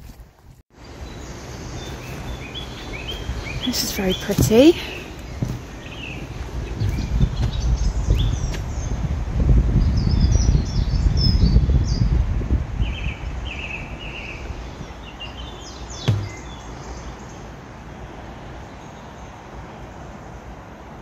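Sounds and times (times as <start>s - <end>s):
wind rumbling on microphone: 0.0s - 21.0s
small birds chirping: 0.8s - 9.1s, 12.8s - 20.4s
sharp knock: 16.0s - 16.5s.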